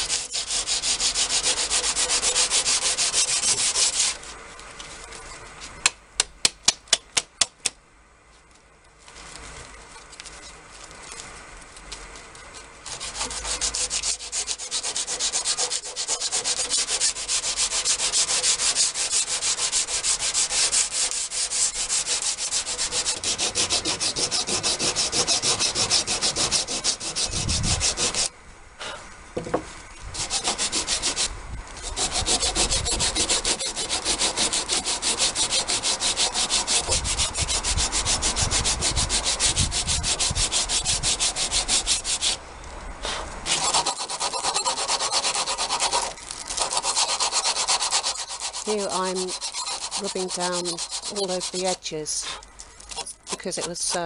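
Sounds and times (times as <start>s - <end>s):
sandpaper rubbing on wood: 0.0s - 4.4s, 12.8s - 28.3s, 30.1s - 42.4s, 43.1s - 54.0s.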